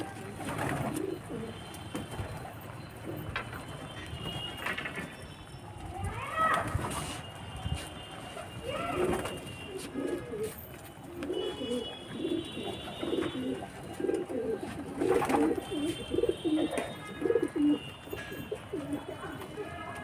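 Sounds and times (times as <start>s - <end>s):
pigeons cooing: 0.8s - 1.6s, 9.7s - 17.8s.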